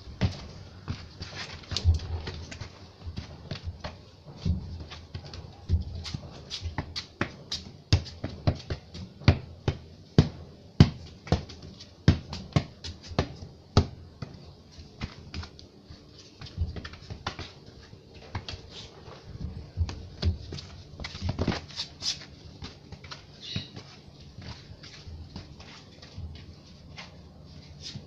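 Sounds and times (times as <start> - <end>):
football bouncing on concrete: 0.1 - 15.6, 16.4 - 27.1
footsteps: 14.2 - 28.0.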